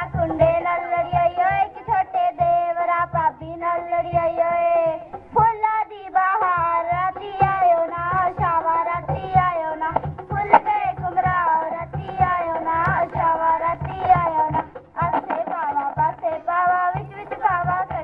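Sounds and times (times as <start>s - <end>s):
low drum beat: 6.2s - 18.0s.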